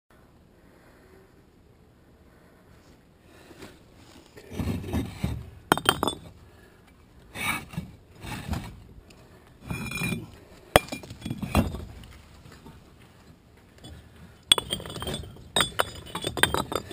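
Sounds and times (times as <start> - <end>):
concrete pavers scraping and clinking: 4.4 - 6.4, 9.6 - 16.9.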